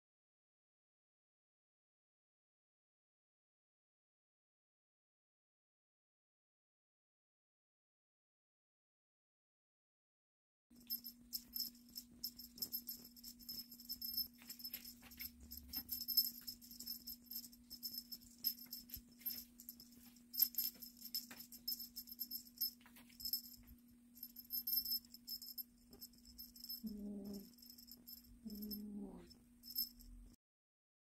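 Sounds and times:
small bell jingling: 10.8 - 30.3
steady low hum: 10.8 - 30.4.

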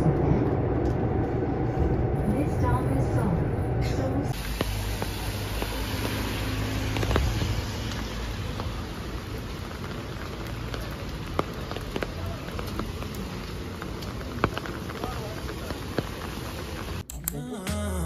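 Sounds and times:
rain on wet street: 4.3 - 17.0.

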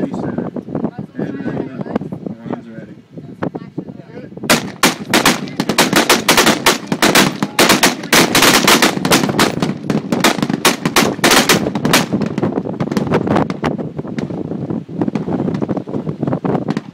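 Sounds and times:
volley of gunfire: 4.5 - 13.2.

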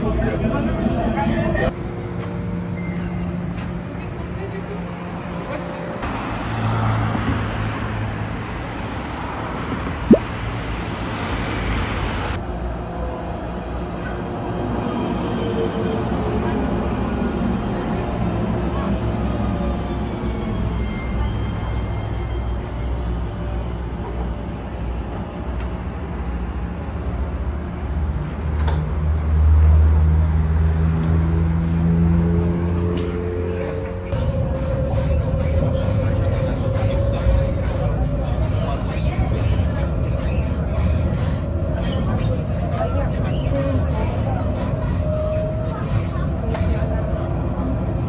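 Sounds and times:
cars passing on street: 0.0 - 48.0
electric tram humming: 0.0 - 48.0.

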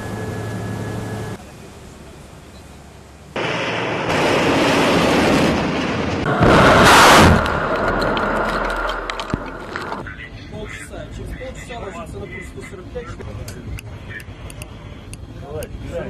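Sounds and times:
rocket exhaust roar: 3.3 - 10.0
launch blast: 3.4 - 10.0.

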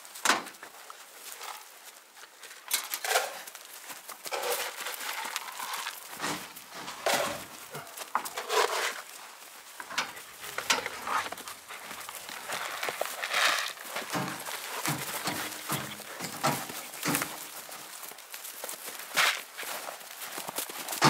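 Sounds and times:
gear clattering and knocking: 9.8 - 13.1, 13.7 - 17.5.

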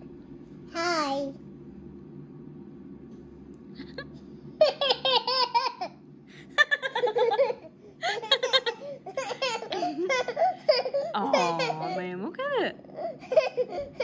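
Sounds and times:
steady low hum: 0.0 - 14.0
young child laughing: 3.8 - 12.0, 13.0 - 14.0.

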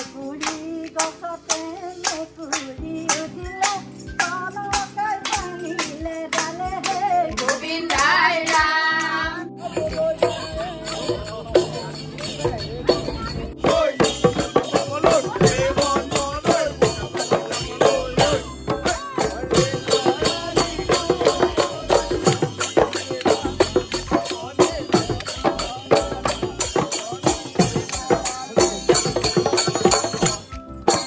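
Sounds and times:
jingling percussion: 0.0 - 31.0
drum beating fast rhythm: 0.4 - 31.0
group singing folk song: 5.8 - 28.8.

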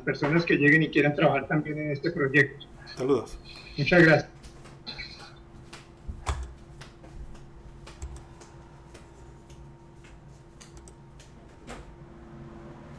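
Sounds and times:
low electrical hum: 0.0 - 12.9
computer mouse clicking: 5.7 - 11.8.

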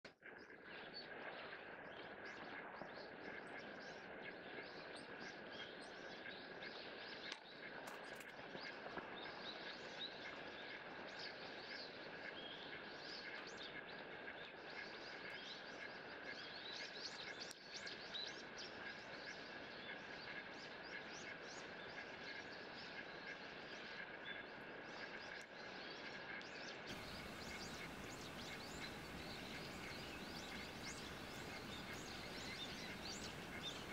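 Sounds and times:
light rain hissing: 26.9 - 33.9
small birds chirping: 26.9 - 33.9.

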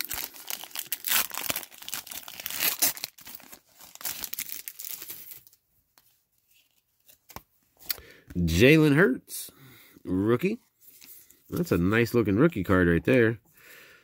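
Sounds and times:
foil wrapper crinkling: 0.0 - 5.6.

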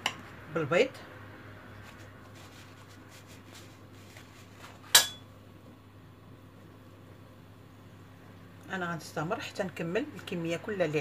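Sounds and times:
knife clinking on stone countertop: 4.9 - 5.3.

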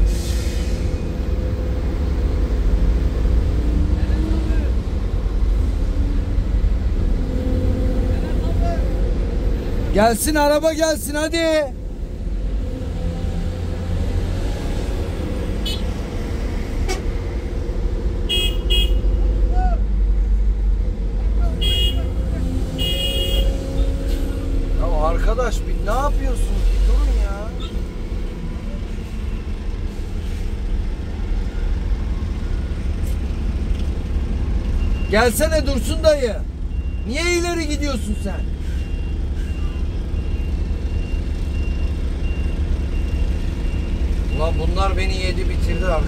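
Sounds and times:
diesel engine running steadily: 0.0 - 46.0
horn toots: 18.3 - 19.2, 21.5 - 24.6.

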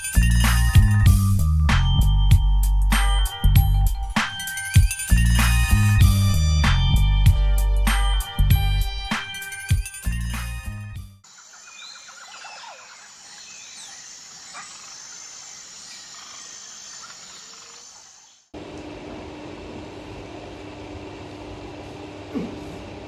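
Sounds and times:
music: 0.0 - 11.2
small birds chirping: 11.2 - 18.5
indoor low hum: 18.6 - 23.0.

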